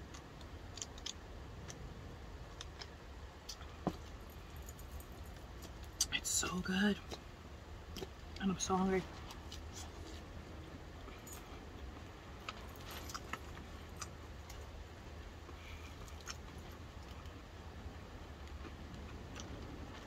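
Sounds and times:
chewing salad: 0.0 - 4.2, 9.2 - 20.0.

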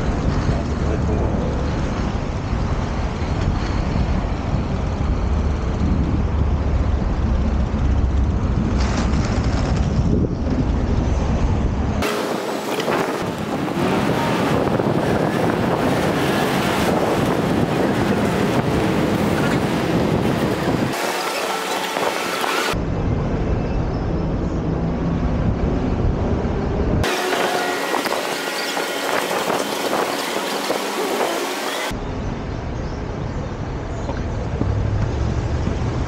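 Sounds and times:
wind buffeting microphone: 0.0 - 36.0
skate wheels rolling on asphalt: 2.8 - 22.8.

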